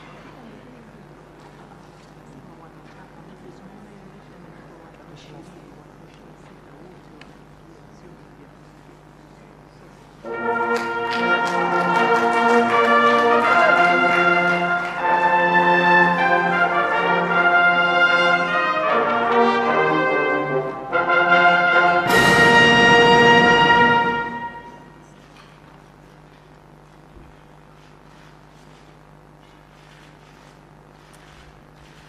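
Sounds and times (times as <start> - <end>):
brass band playing: 10.2 - 25.0
cymbal crash: 21.8 - 24.9.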